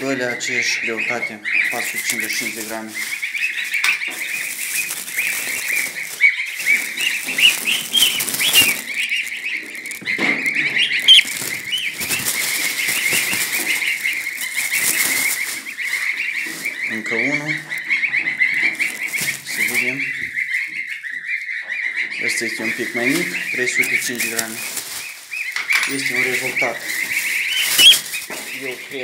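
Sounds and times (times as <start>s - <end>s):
goslings peeping: 0.0s - 29.0s
rustles and bumps: 1.7s - 20.4s, 22.4s - 29.0s.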